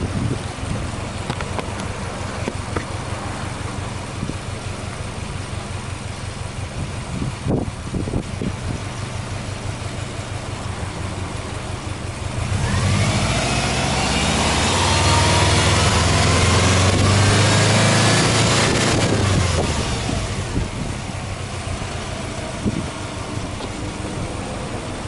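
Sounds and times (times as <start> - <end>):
car engine idling and revving: 0.0 - 25.0.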